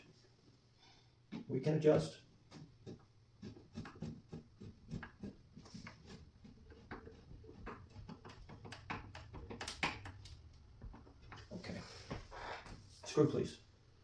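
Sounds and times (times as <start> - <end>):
furniture parts clicking and tapping: 4.9 - 11.5.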